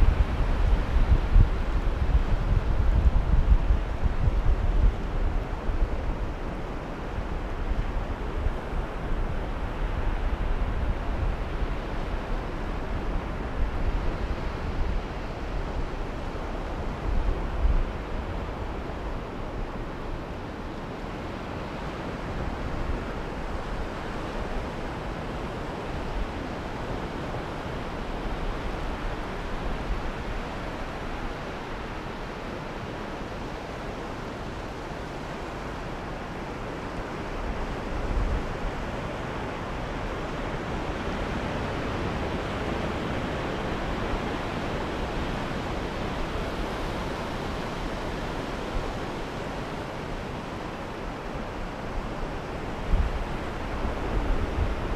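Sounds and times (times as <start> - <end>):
wind buffeting microphone: 0.0 - 20.4
sea surf washing on beach: 0.0 - 54.9.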